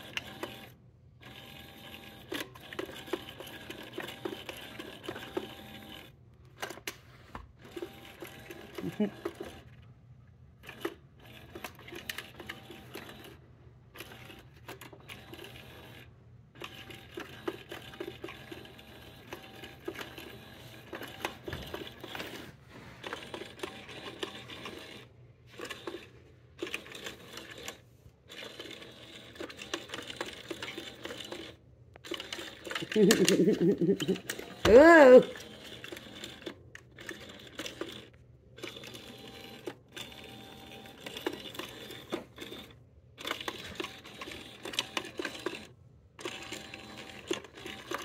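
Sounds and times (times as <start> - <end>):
toy mechanism clicking: 10.6 - 22.3, 23.0 - 48.0.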